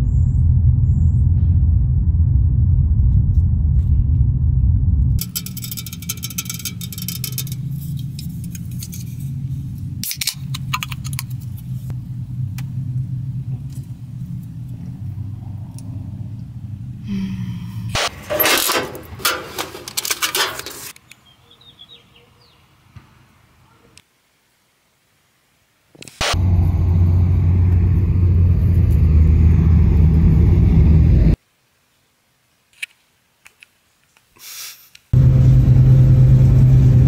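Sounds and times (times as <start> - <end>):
clicks and crackles: 5.2 - 11.7, 32.7 - 34.3
rattling and rustling: 5.2 - 11.9, 18.0 - 21.0
car engine idling: 5.2 - 17.9, 26.4 - 31.4.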